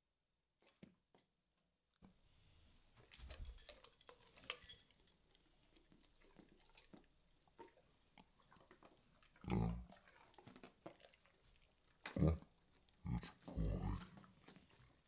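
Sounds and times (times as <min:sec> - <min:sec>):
dog chewing a treat: 0:03.0 - 0:15.0.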